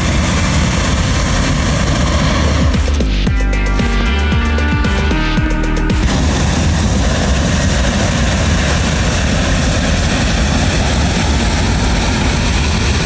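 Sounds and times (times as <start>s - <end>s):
propane burner blast: 0.0s - 3.2s, 5.8s - 13.0s.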